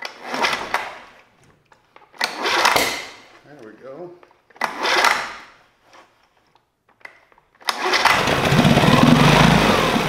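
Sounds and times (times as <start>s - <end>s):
starter rope pull: 7.6s - 10.0s
outboard engine running: 8.1s - 10.0s.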